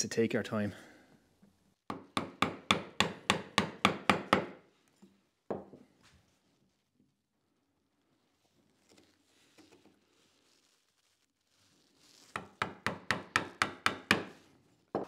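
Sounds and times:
mallet striking wood chisel: 1.9 - 4.6, 12.4 - 14.3.

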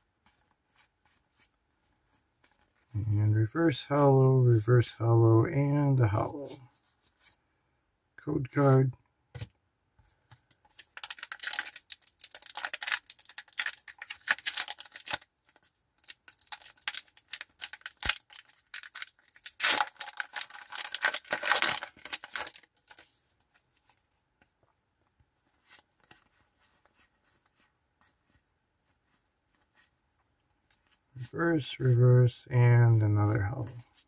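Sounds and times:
faint rustling of cards: 0.0 - 5.1, 5.9 - 7.5, 8.5 - 34.0
foil wrapper crinkling and tearing: 10.8 - 23.0.

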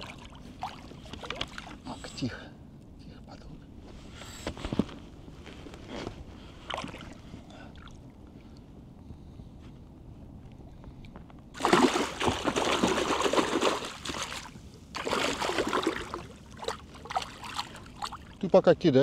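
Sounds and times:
water splashing off net: 11.6 - 18.3
fish thrashing in water: 11.6 - 18.4.

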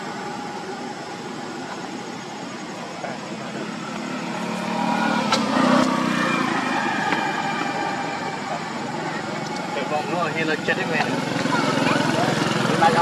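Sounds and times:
vehicle engine passing by: 0.0 - 13.0.

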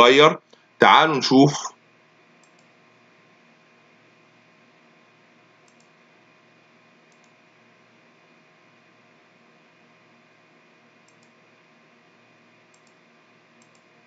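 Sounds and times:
computer mouse clicks: 2.4 - 2.7, 5.6 - 6.0, 7.1 - 7.4, 11.0 - 11.4, 12.7 - 13.0, 13.6 - 13.9.

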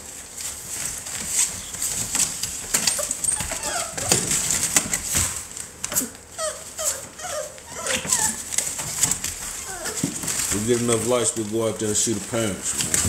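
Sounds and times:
wood shavings rustling: 0.0 - 13.0
puppy yips and whines: 2.8 - 4.3, 6.0 - 8.8, 9.6 - 10.0.

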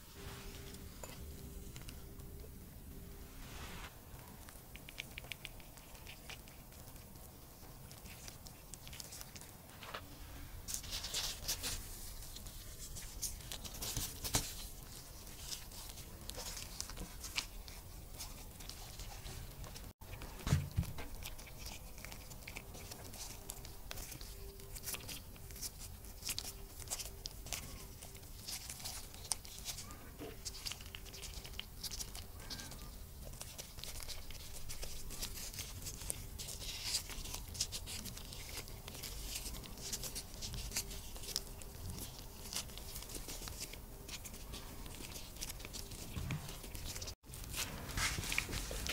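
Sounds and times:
gloved hands folding dough: 0.0 - 48.9.

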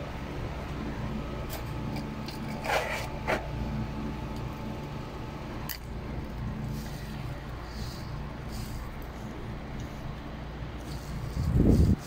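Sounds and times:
steady low hum: 0.0 - 12.0
short scraping sounds: 2.4 - 3.5.

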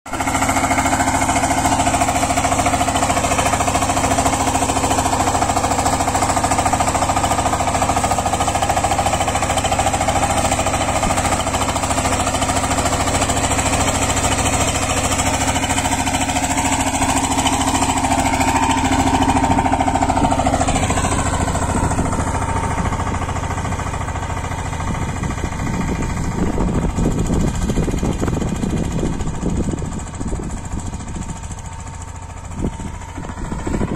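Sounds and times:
diesel tiller engine knocking: 0.1 - 33.9.

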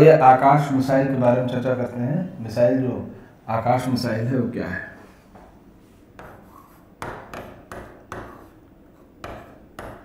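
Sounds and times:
pen scratching on a board: 6.2 - 10.0.

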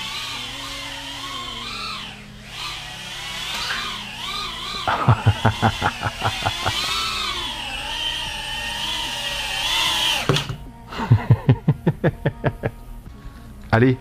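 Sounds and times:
drone motors whining: 0.0 - 11.1.

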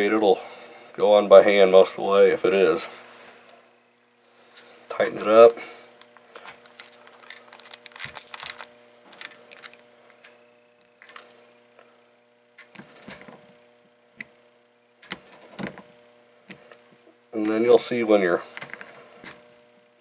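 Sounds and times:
metal reel parts clicking: 6.4 - 10.4.

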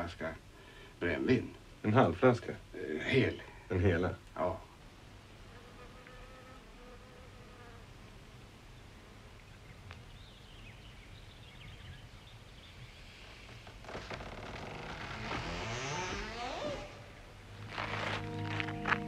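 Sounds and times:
insect buzzing: 13.8 - 19.0
music: 17.5 - 19.0.

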